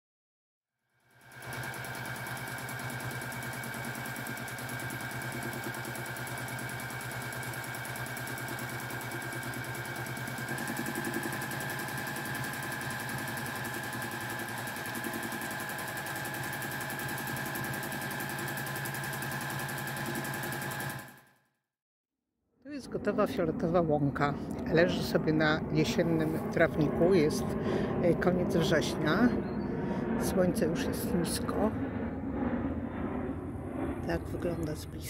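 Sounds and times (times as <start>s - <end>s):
sewing machine running: 1.0s - 21.3s.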